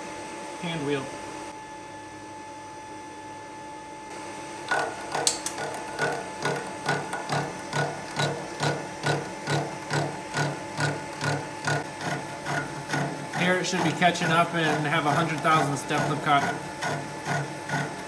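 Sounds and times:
milling machine hum: 0:00.0 - 0:18.0
milling cutter biting metal: 0:04.7 - 0:18.0.

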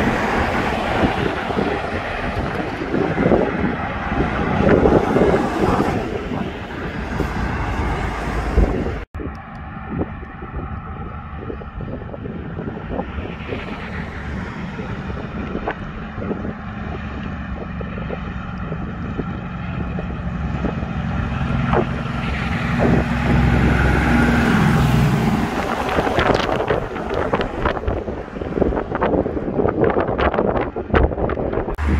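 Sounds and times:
trailers rattling: 0:00.0 - 0:09.6, 0:10.8 - 0:31.9
diesel truck engine passing: 0:00.0 - 0:30.6
wind buffeting microphone: 0:00.0 - 0:31.9.

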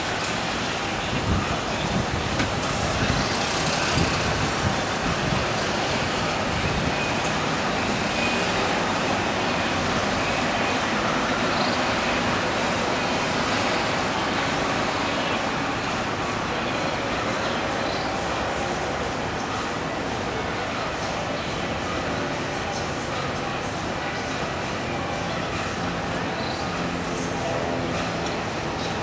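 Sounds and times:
passing traffic: 0:00.0 - 0:29.0.

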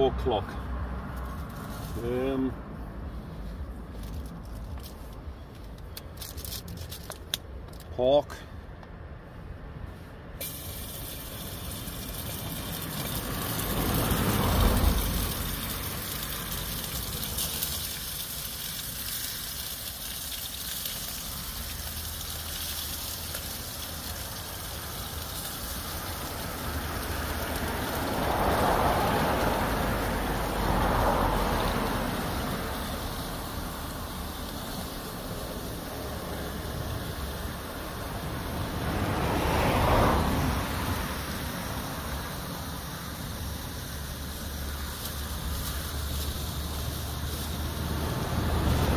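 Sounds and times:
road traffic passing: 0:00.0 - 0:48.9.

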